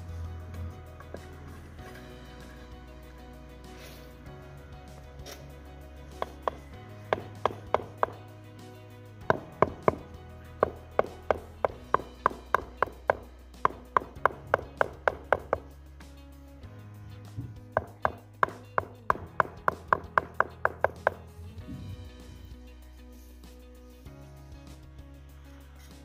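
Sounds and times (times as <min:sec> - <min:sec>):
background music: 0:00.0 - 0:26.0
rubber mallet tapping stone: 0:06.2 - 0:08.2, 0:09.2 - 0:15.7, 0:17.8 - 0:21.3.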